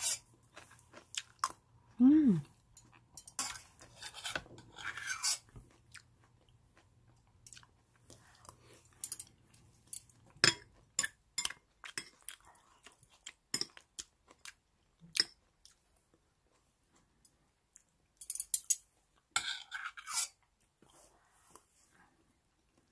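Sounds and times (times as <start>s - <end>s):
spoon scraping steel pot: 0.0s - 0.2s, 3.2s - 5.5s, 19.4s - 20.4s
chewing and crunching greens: 0.0s - 18.0s.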